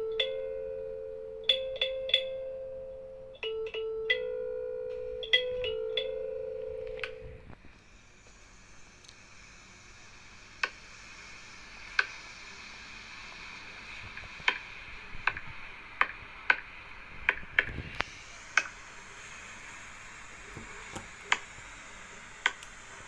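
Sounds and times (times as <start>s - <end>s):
faint hiss: 7.0s - 23.0s
sharp irregular clicks: 10.6s - 10.8s, 11.9s - 12.2s, 14.4s - 14.6s, 22.4s - 22.7s.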